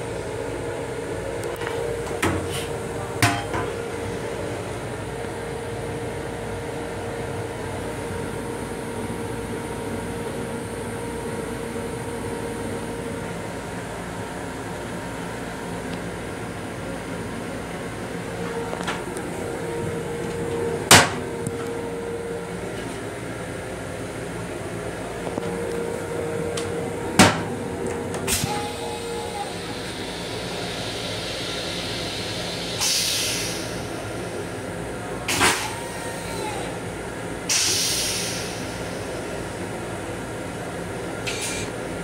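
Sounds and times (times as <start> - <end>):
train running noise: 0.0 - 42.0
toilet flushing hiss: 28.3 - 34.4, 37.5 - 39.4.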